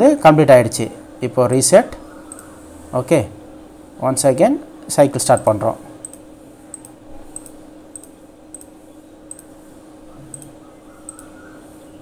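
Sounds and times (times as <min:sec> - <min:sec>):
faint steady hum: 0:00.0 - 0:12.0
computer mouse clicking: 0:02.2 - 0:02.6, 0:05.4 - 0:09.5, 0:10.3 - 0:11.4.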